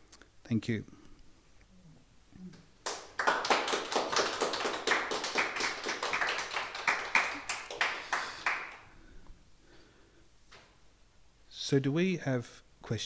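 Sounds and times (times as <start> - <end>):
audience applauding: 2.8 - 8.9.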